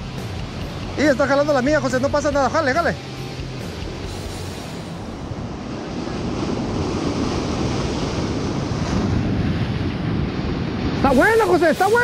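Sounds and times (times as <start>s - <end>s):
surf breaking on rocky shore: 0.0s - 12.0s
wind buffeting microphone: 3.2s - 12.0s.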